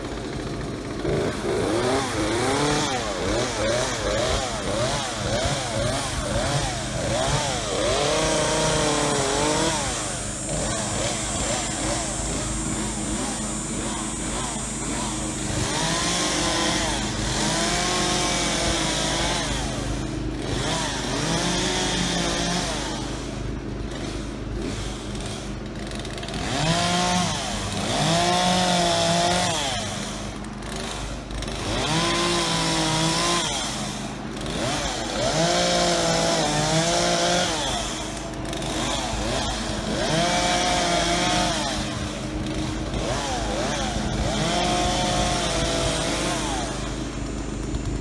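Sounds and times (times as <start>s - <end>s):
chainsaw revving and idling: 0.0s - 48.0s.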